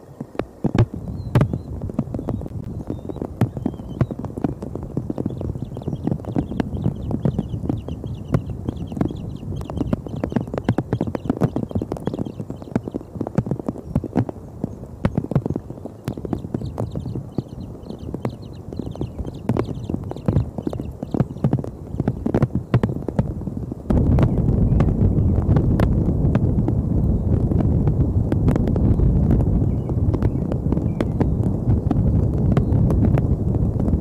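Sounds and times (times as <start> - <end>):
wind rumbling on microphone: 0.0 - 34.0
rapid irregular clicks and knocks: 0.2 - 23.3.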